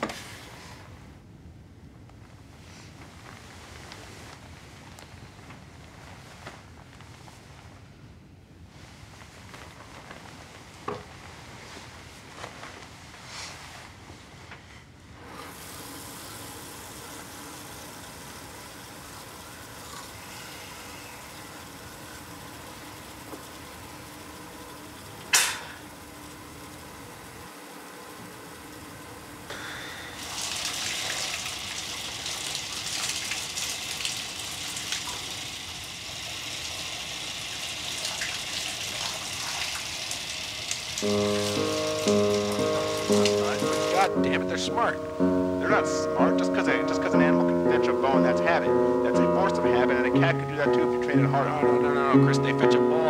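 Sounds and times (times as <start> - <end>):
bedding rustling: 2.1 - 7.9, 8.6 - 15.3
steady even hiss: 9.4 - 32.6, 40.2 - 53.0
shower water spraying: 15.2 - 44.5.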